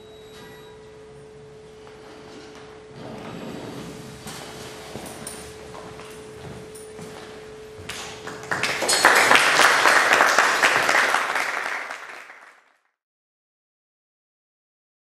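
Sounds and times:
audience applause: 8.2s - 12.9s.

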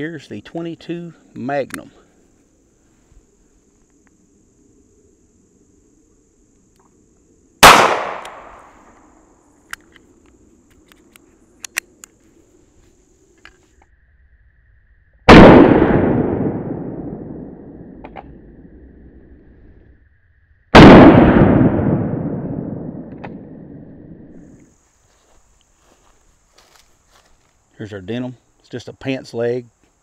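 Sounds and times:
handgun shots: 7.6s - 8.6s.

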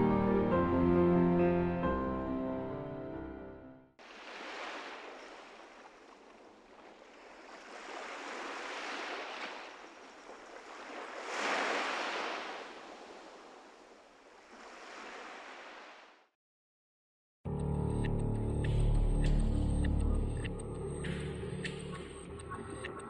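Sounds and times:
waves washing onto beach: 4.0s - 16.2s.

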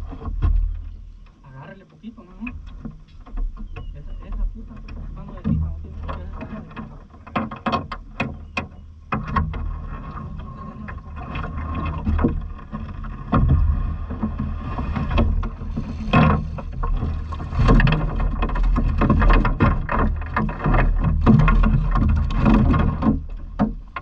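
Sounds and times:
handling knocks and clatters: 0.0s - 24.0s
water lapping: 0.0s - 24.0s
wind buffeting microphone: 9.6s - 23.3s.

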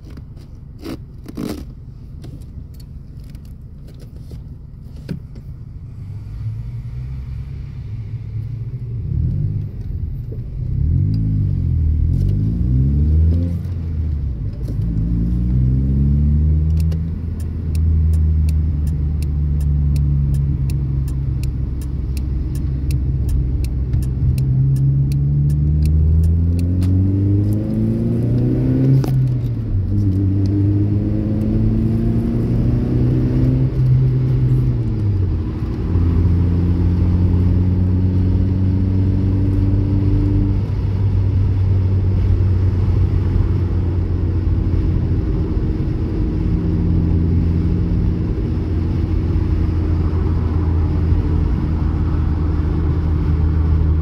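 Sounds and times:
car engine revving: 5.9s - 54.0s
regular ticking: 16.7s - 26.8s.

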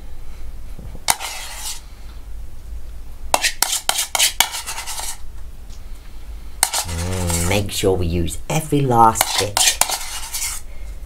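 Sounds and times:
spoon scraping and clinking bowl: 6.6s - 7.6s.

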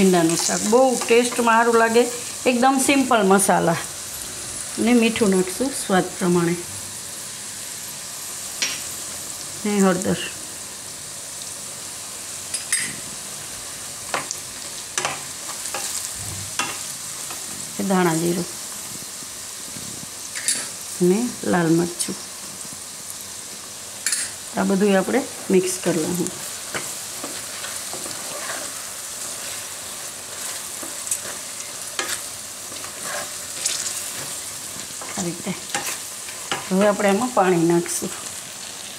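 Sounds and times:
okra sizzling in hot oil: 0.0s - 38.9s
spatula clicking and scraping: 26.7s - 37.0s.

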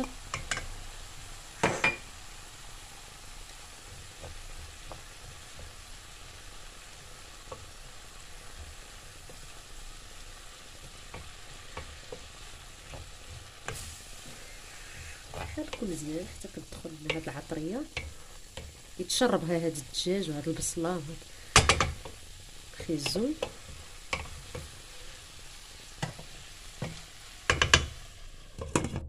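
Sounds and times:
food frying in a pan: 0.0s - 29.0s
spoon stirring and scraping: 10.4s - 20.0s, 21.2s - 28.0s.

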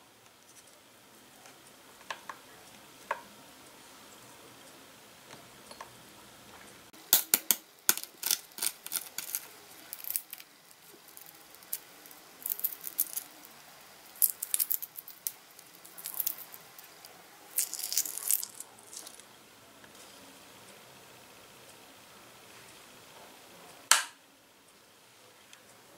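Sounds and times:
egg shell cracking: 7.1s - 19.3s.

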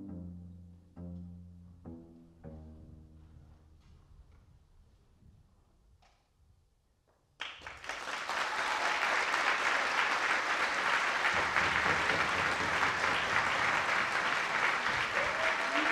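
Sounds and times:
audience applause: 7.4s - 15.9s.

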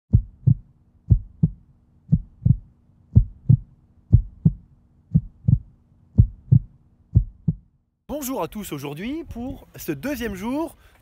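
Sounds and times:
heartbeat thumps: 0.1s - 7.8s.

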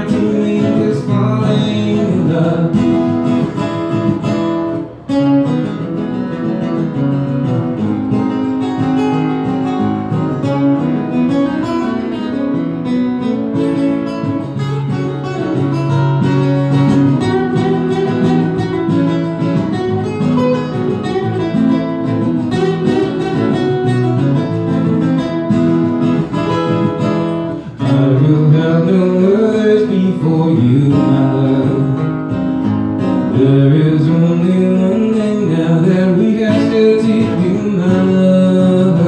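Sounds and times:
man singing: 0.0s - 3.6s, 27.6s - 32.4s, 33.2s - 39.0s
acoustic guitar strumming: 0.0s - 39.0s.

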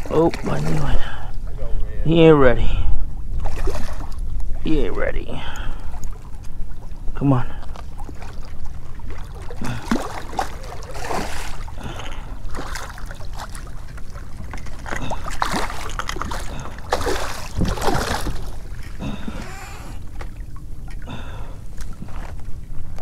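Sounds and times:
fish thrashing water splashing: 3.4s - 4.2s, 7.8s - 20.6s.

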